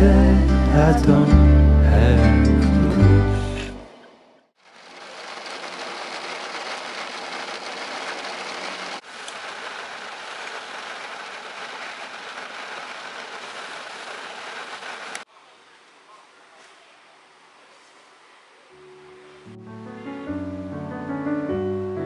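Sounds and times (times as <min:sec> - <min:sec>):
rain on a car roof: 0:04.6 - 0:15.3.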